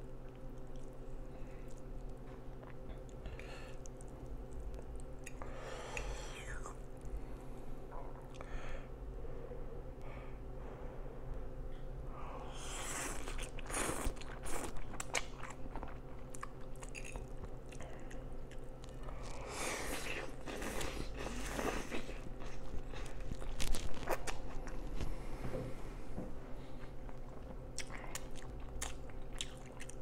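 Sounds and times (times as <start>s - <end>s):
person chewing: 0.2s - 7.1s, 12.5s - 25.2s, 26.8s - 30.0s.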